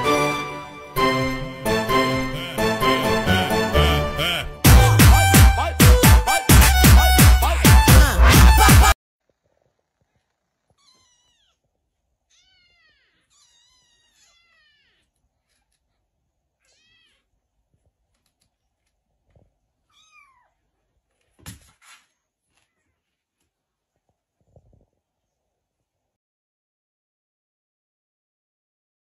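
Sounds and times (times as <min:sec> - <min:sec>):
kitten mewing: 0:10.7 - 0:11.6, 0:12.3 - 0:15.8.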